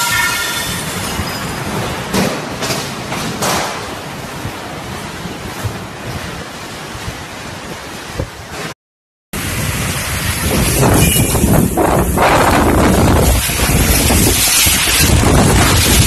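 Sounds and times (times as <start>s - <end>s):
wind buffeting microphone: 3.5s - 8.7s, 9.4s - 16.0s
strong wind rushing: 9.4s - 16.0s.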